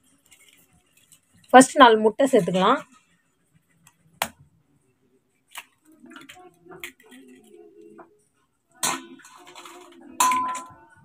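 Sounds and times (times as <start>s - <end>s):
eggs cracking against metal bowl: 8.8s - 10.9s.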